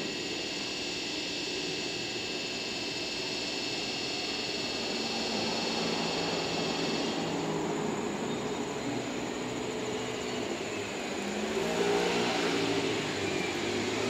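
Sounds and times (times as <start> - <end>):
high-pitched whirr: 0.0 - 14.0.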